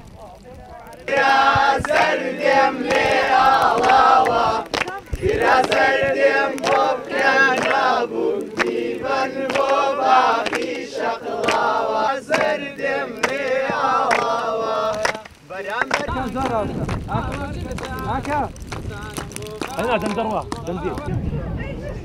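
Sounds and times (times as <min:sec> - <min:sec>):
group singing in chorus: 0:01.0 - 0:16.2
hands clapping: 0:01.1 - 0:21.1.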